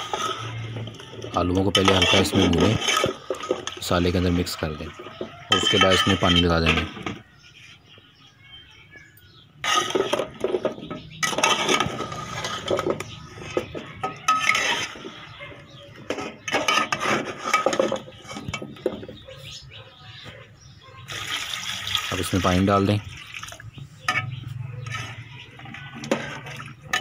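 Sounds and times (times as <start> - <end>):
metal spoon scraping a pot: 0.0 - 7.7, 9.6 - 19.2, 24.0 - 27.0.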